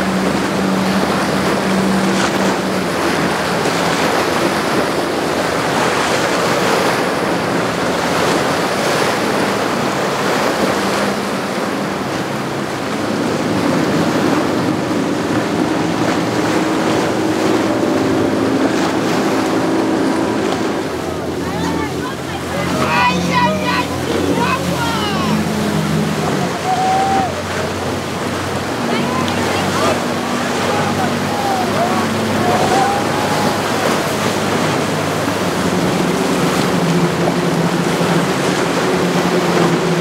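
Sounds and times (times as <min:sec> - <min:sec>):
outboard motor hum: 0:00.0 - 0:40.0
water churning and breaking: 0:00.0 - 0:40.0.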